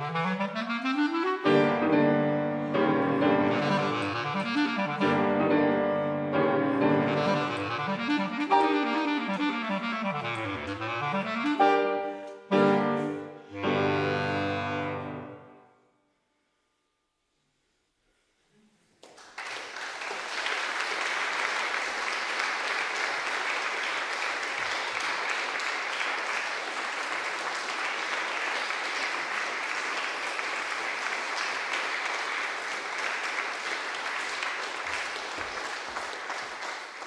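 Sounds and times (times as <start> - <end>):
audience applauding: 19.0 - 37.0.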